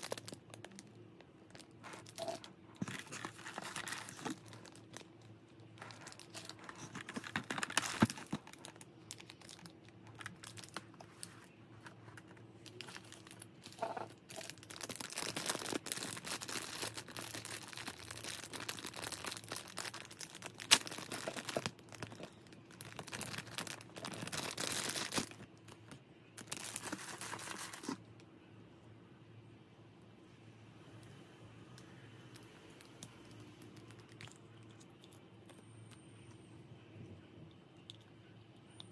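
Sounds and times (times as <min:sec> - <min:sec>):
plastic bags crinkling: 0:00.0 - 0:28.0.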